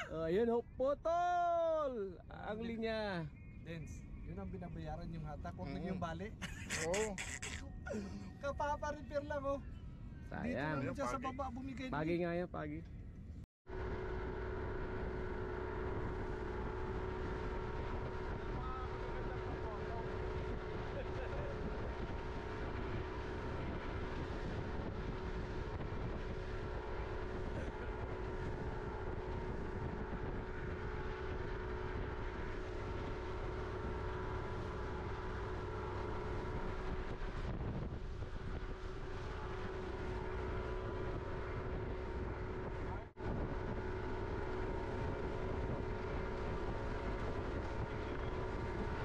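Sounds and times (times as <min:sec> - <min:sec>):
motorboat engine drone: 0:00.0 - 0:00.9, 0:02.0 - 0:12.2, 0:12.9 - 0:49.0
water rushing along hull: 0:13.7 - 0:49.0.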